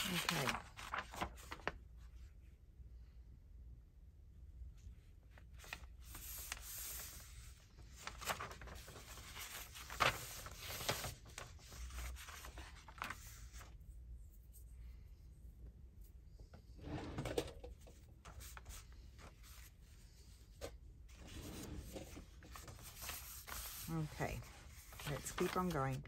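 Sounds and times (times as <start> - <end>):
paper rustling and scraping: 0.0 - 1.7, 5.6 - 13.8, 16.7 - 26.0.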